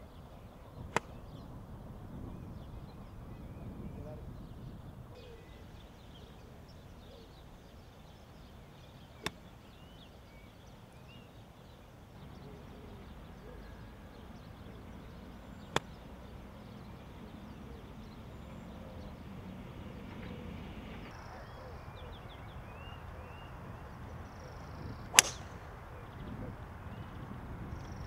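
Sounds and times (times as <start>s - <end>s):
birds chirping: 0.0s - 28.0s
outdoor air noise: 0.0s - 28.0s
golf club striking ball: 25.1s - 25.6s.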